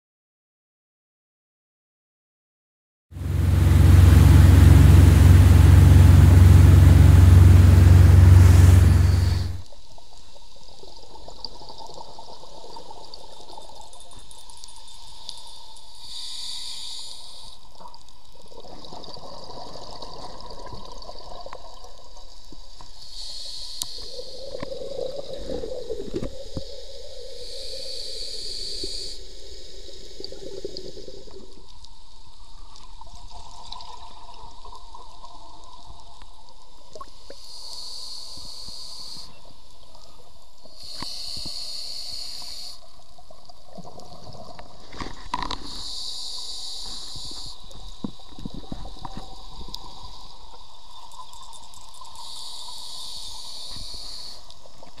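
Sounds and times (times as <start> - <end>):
scuba regulator hissing inhale: 5.2 - 9.6, 16.0 - 17.7, 22.9 - 24.7, 26.3 - 31.4, 37.3 - 43.0, 45.1 - 48.0, 52.0 - 54.9
exhaled air bubbling underwater: 16.0 - 55.0.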